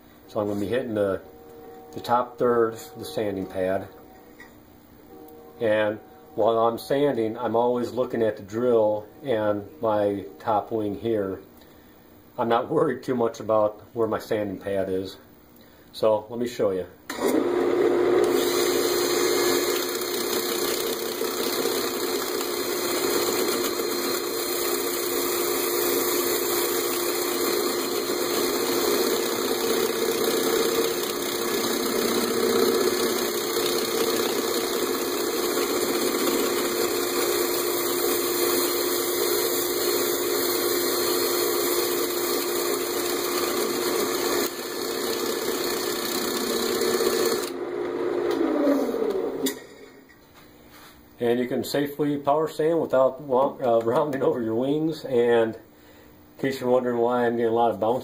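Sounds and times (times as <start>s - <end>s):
cordless drill motor hum: 17.1s - 49.6s.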